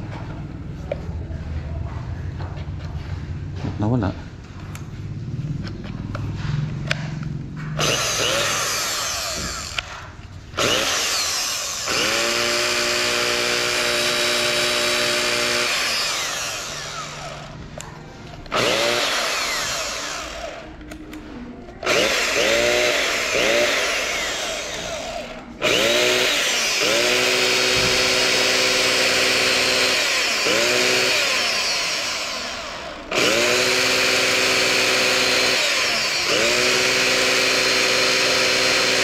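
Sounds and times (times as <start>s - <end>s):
rotary hammer motor whining: 7.7s - 17.6s, 18.4s - 20.8s, 21.8s - 39.0s.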